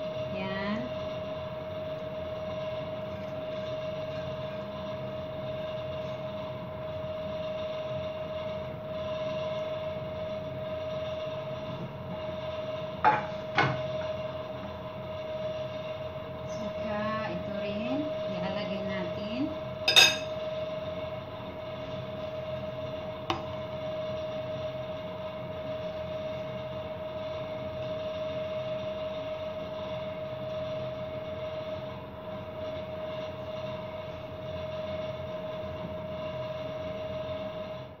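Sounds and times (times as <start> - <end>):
steady hum: 0.0 - 38.0
spoon clinking on dish: 19.9 - 20.3.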